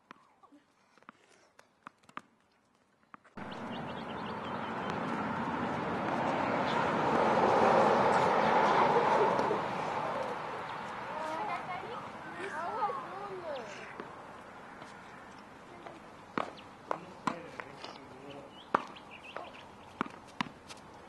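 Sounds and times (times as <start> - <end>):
loud rushing noise: 3.4 - 10.6
tennis ball hitting racket: 16.3 - 17.7, 18.7 - 20.8.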